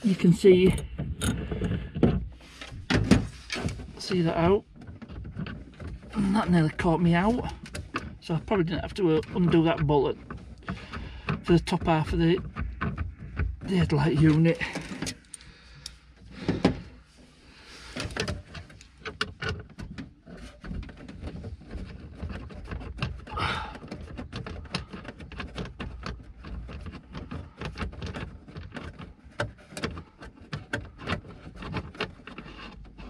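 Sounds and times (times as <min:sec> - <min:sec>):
clicks and scrapes on plastic trim: 0:00.6 - 0:17.0, 0:17.8 - 0:33.0.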